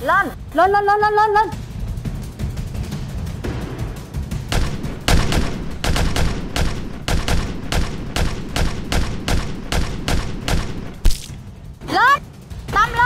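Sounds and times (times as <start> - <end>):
paintball markers firing: 4.5 - 11.4.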